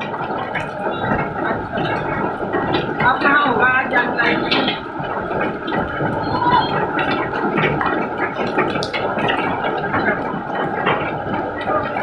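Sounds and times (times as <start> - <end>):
hail and rain pelting a road: 0.0 - 12.0.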